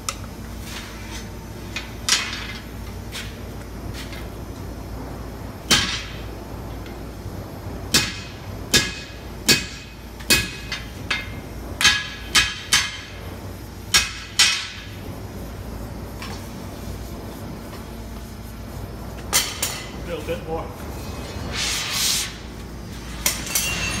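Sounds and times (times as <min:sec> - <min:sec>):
hammer striking punch on hot steel: 0:05.6 - 0:06.2, 0:07.9 - 0:13.2, 0:13.9 - 0:14.9, 0:19.3 - 0:20.0.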